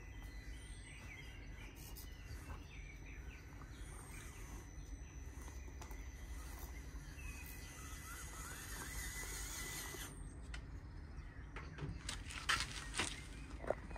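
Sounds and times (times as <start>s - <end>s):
bird chirping: 0.0s - 13.9s
toy truck motor whining: 5.4s - 10.3s.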